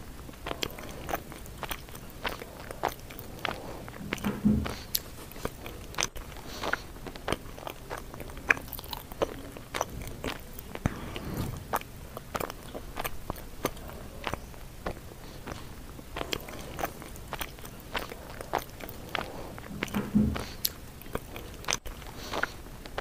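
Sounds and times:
person chewing with crunches: 0.0s - 23.0s.

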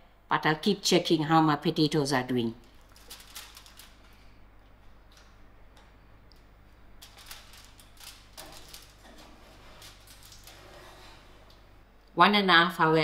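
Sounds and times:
low room hum: 0.0s - 13.0s
foil rustling: 2.8s - 4.3s, 7.0s - 11.4s.

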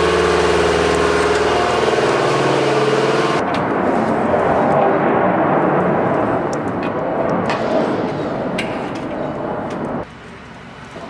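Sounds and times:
roar of running machinery: 0.0s - 3.4s.

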